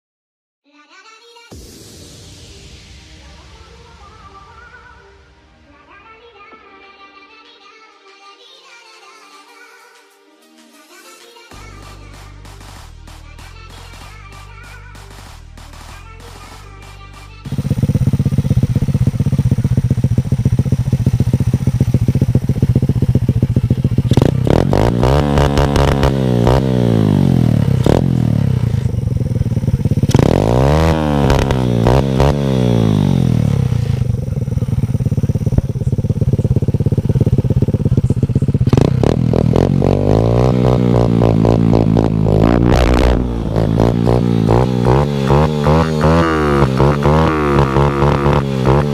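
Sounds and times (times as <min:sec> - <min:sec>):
kart engine idling and revving: 0:15.0 - 0:48.9.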